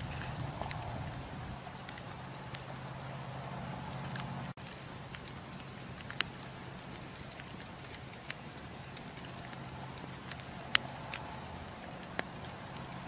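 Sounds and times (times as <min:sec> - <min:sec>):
sharp pops from fire: 0:00.0 - 0:13.0
steady low hum: 0:00.0 - 0:13.0
wood fire crackling: 0:00.0 - 0:13.0.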